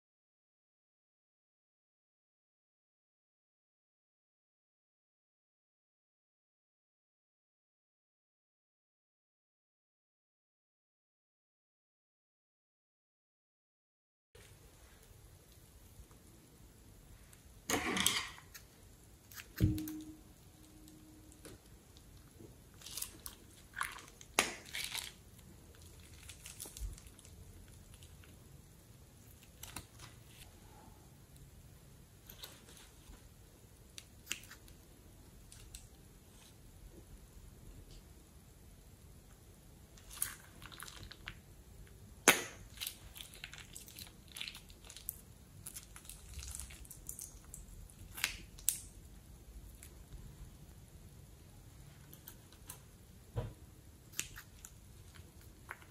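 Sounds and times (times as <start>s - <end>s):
slime wet crackles: 22.7s - 28.4s, 40.0s - 41.4s, 42.2s - 48.9s.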